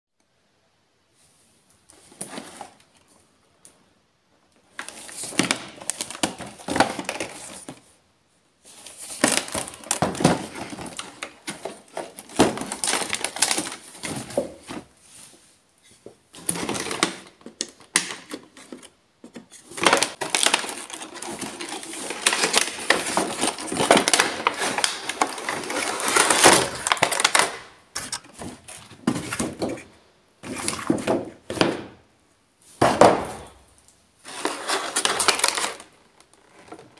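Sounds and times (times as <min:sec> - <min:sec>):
plastic packaging crinkling: 0:08.7 - 0:14.7, 0:19.6 - 0:29.7, 0:34.2 - 0:36.9.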